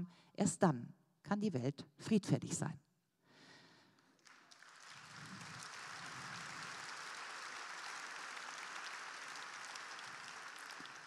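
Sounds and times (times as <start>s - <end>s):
large audience applauding: 4.2s - 11.0s.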